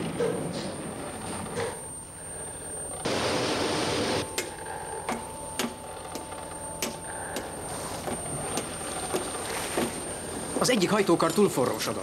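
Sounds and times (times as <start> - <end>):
faint steady tone: 1.6 - 11.9.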